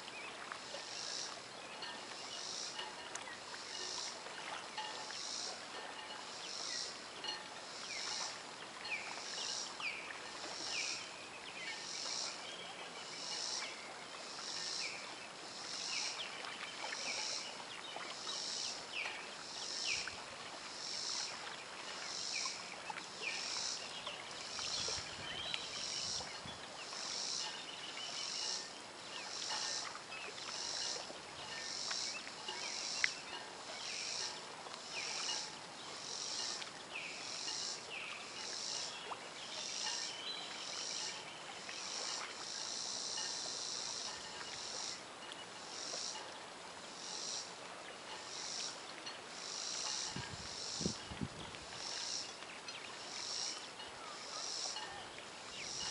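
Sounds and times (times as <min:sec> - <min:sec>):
steady outdoor hiss: 0:00.0 - 0:55.9
insects calling in pulses: 0:00.7 - 0:08.4, 0:11.7 - 0:12.4, 0:13.1 - 0:16.3, 0:16.9 - 0:45.0, 0:45.6 - 0:46.3, 0:46.9 - 0:47.5, 0:48.1 - 0:48.8, 0:49.4 - 0:52.4, 0:53.0 - 0:54.9, 0:55.6 - 0:55.9.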